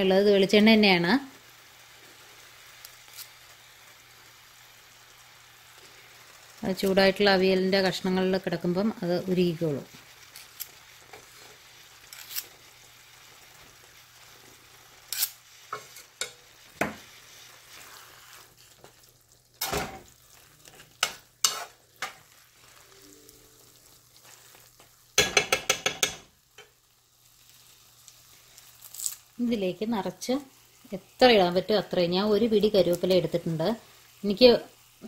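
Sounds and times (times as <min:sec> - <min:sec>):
faint sizzling: 0:00.0 - 0:35.0
spoon stirring and scraping pan: 0:09.3 - 0:26.8
spoon tapping pan: 0:15.7 - 0:17.1, 0:24.8 - 0:26.8
spoon clinking against pan: 0:25.2 - 0:26.3.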